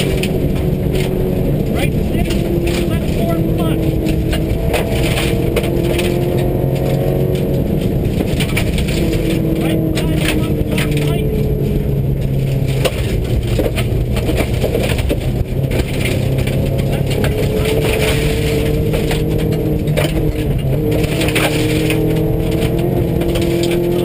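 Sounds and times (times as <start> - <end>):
gravel crunching under tyres: 0.0 - 24.0
rally car engine pulling hard: 0.0 - 24.0
stones pinging against underbody: 12.3 - 24.0.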